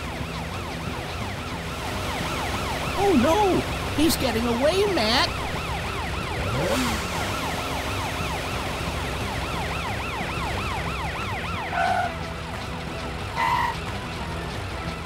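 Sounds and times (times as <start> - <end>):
cartoon police siren yelping: 2.1 - 8.6, 9.3 - 12.2.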